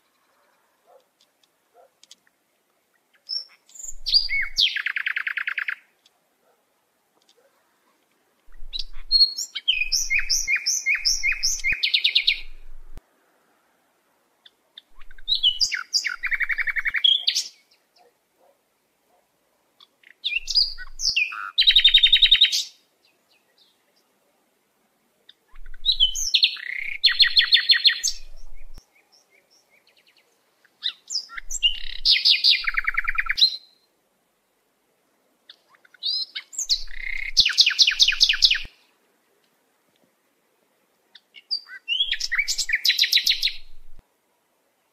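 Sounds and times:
songbird singing with trill: 2.9s - 5.9s, 8.5s - 13.0s, 14.4s - 18.1s, 19.8s - 24.1s, 25.3s - 33.9s, 35.5s - 38.8s, 41.1s - 44.0s.

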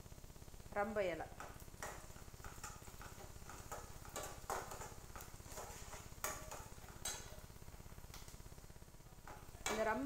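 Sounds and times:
spoon scraping metal pan: 1.4s - 7.5s.

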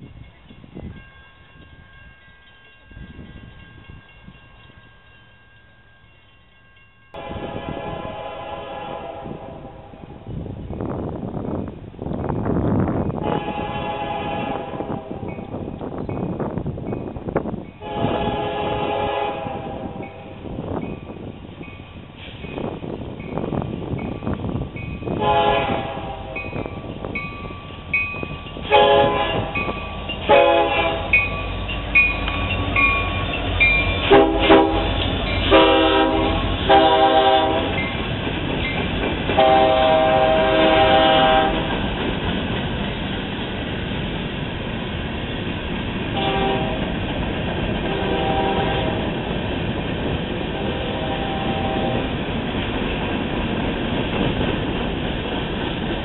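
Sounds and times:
crossing bell ringing: 0.0s - 8.2s, 13.8s - 41.7s
locomotive engines rumbling: 0.0s - 56.0s
train air horn blasts: 7.2s - 10.2s, 13.2s - 15.3s, 17.8s - 20.3s, 25.2s - 26.6s, 28.6s - 31.3s, 34.0s - 37.9s, 39.4s - 41.7s, 46.2s - 46.9s, 47.9s - 49.1s, 50.6s - 52.1s
freight cars rolling past: 20.0s - 56.0s.

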